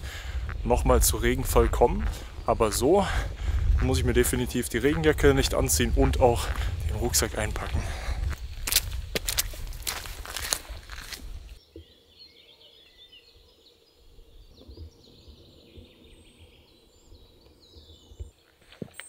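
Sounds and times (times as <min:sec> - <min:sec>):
low rumble: 0:00.0 - 0:11.5
footsteps: 0:00.0 - 0:11.6
small birds chirping: 0:00.0 - 0:19.0.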